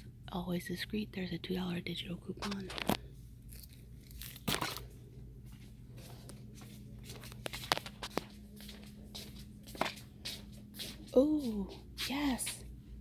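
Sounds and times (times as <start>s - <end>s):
flip-flop footsteps on hard floor: 5.5s - 12.6s.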